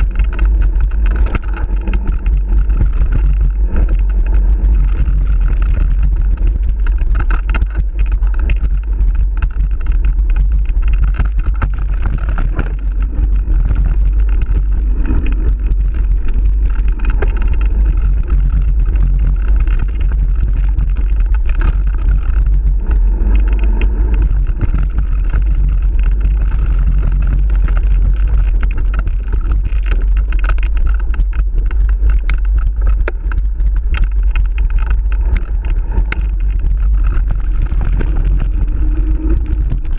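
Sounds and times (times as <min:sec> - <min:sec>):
bike rattling and knocking: 0:00.0 - 0:39.9
wind rumble on microphone: 0:00.0 - 0:39.9.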